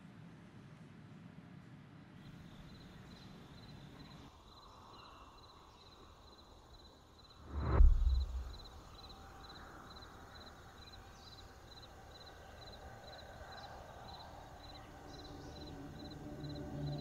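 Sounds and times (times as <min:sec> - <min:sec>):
faint forest ambience: 0:02.2 - 0:17.0
insects chirping: 0:02.4 - 0:17.0
deep boom with falling swish: 0:07.4 - 0:09.1.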